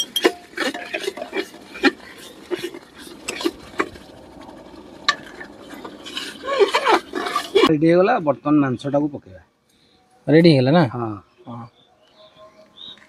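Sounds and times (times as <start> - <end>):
metal ladle scraping a pot: 0.0 - 4.1, 5.1 - 7.7.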